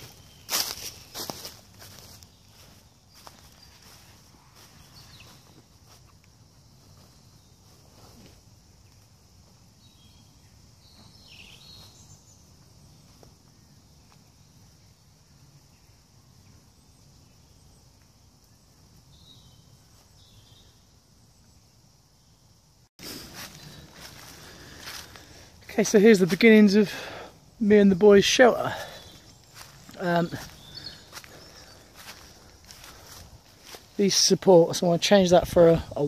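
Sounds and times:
rustles in dry leaves: 0.0 - 14.9, 23.0 - 36.0
faint steady hiss: 0.0 - 36.0.

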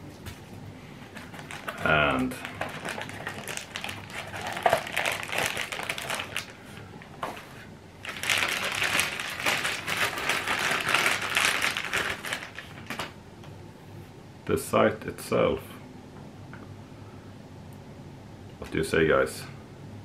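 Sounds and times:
plastic bag crinkling: 1.1 - 13.2.

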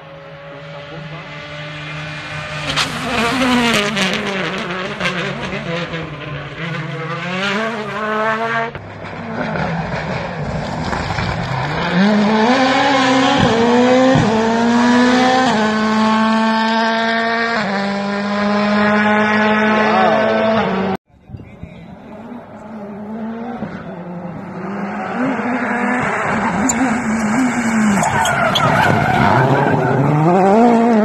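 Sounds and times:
rally car engines revving past: 0.0 - 21.0, 21.9 - 31.0
exhaust cracks and pops: 10.4 - 11.7.

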